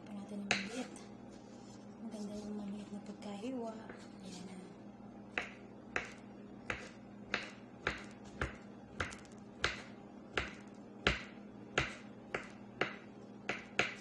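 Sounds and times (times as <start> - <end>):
knife chopping on wooden board: 5.3 - 14.0.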